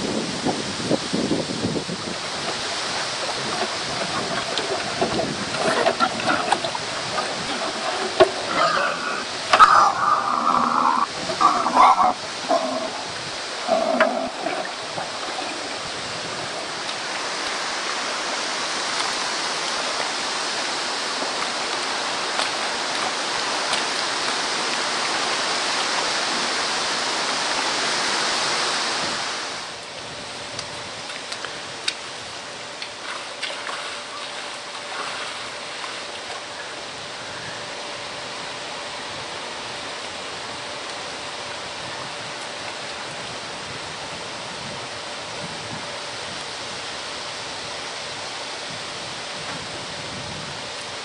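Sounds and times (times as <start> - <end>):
running water hissing: 0.0 - 29.7
pig grunting: 5.6 - 15.8.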